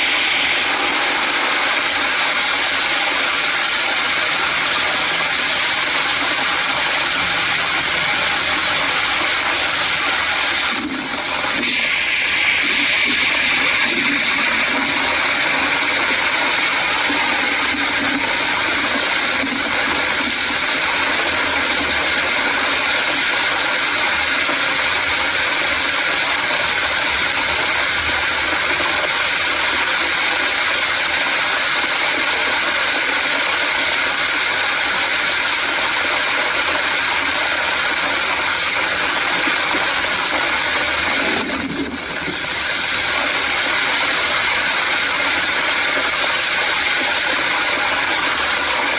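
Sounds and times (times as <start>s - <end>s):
vehicle running on wet road: 0.0s - 30.6s
heavy rain on windshield: 0.0s - 48.9s.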